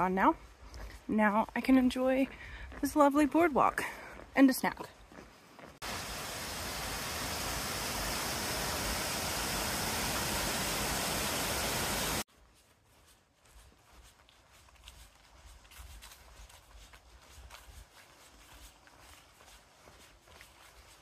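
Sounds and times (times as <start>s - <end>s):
quiet forest sound: 3.9s - 21.0s
waterfall rushing: 5.8s - 12.2s.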